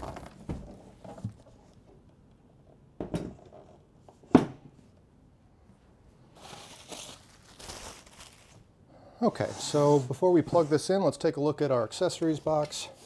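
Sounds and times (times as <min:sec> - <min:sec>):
packaging rustling: 0:06.4 - 0:08.7.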